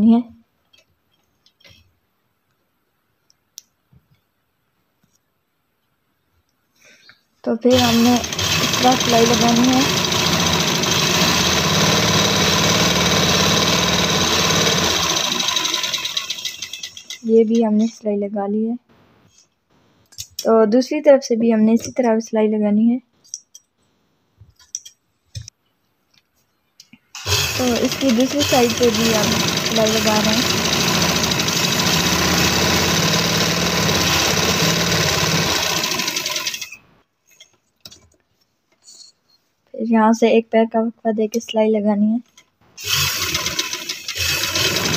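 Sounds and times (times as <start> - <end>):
sewing machine stitching: 7.7 - 17.5, 27.2 - 36.8, 42.8 - 44.9.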